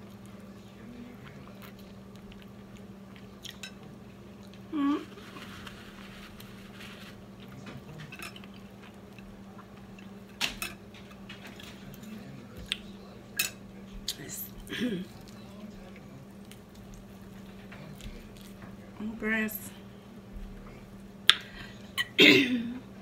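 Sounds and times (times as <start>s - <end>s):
chewing fried chicken: 0.0s - 19.0s
steady low hum: 0.0s - 23.0s
person humming mm: 4.7s - 5.3s.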